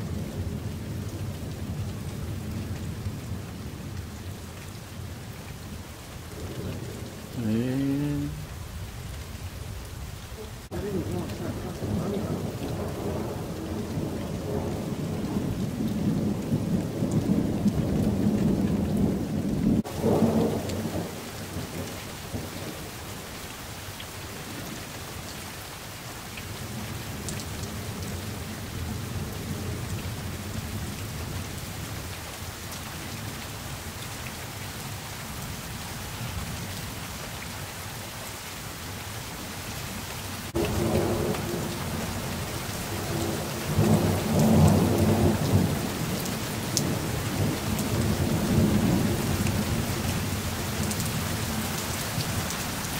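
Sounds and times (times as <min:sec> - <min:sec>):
steady rain: 0:00.0 - 0:52.9
thunder rumbling: 0:08.4 - 0:22.9, 0:40.5 - 0:51.6.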